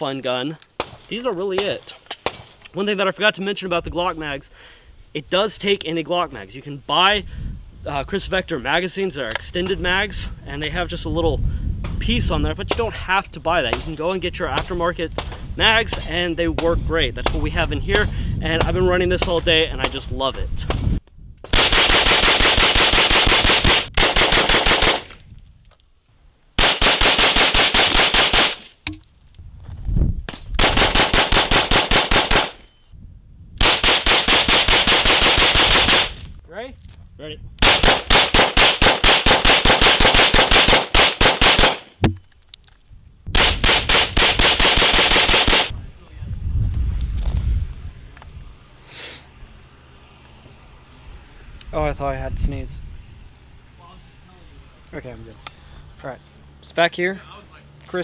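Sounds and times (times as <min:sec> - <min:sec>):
rapid gunshots: 0:21.5 - 0:25.1, 0:26.6 - 0:28.6, 0:30.6 - 0:32.6, 0:33.6 - 0:36.2, 0:37.6 - 0:41.9, 0:43.4 - 0:45.7.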